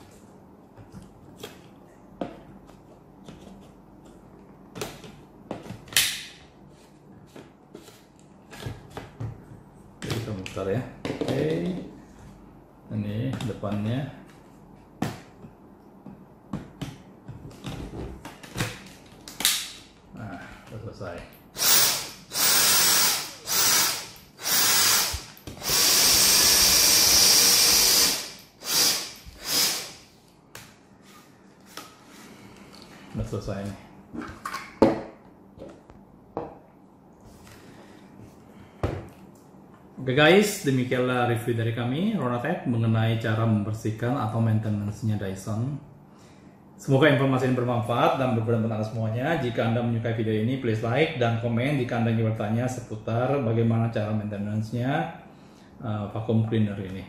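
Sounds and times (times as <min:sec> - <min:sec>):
vacuum cleaner motor whirring: 0:21.6 - 0:30.0.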